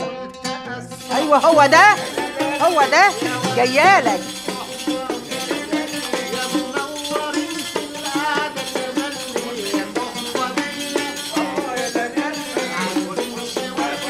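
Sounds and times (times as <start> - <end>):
plucked oud notes: 0.0 - 2.0
tambourine jingling beat: 0.8 - 14.0.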